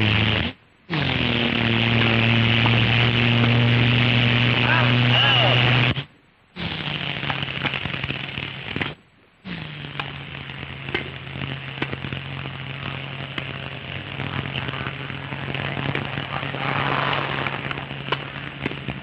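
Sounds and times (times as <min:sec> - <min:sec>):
film crackles: 0:09.9 - 0:19.0.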